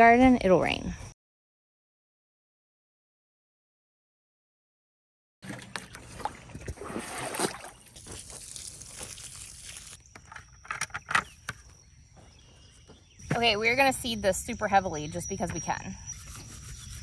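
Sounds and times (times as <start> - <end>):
water pouring from watering can: 5.4 - 10.0.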